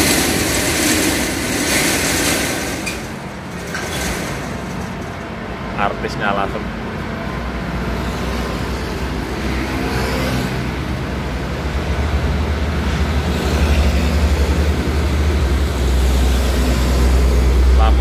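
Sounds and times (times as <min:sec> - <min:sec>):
diesel truck engine droning: 0:10.8 - 0:18.0.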